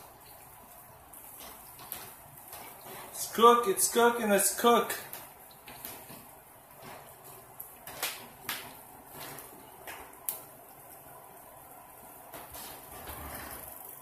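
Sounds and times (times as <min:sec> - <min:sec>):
drippings sizzling in a pan: 0:00.0 - 0:14.0
sharp pops: 0:07.8 - 0:10.4.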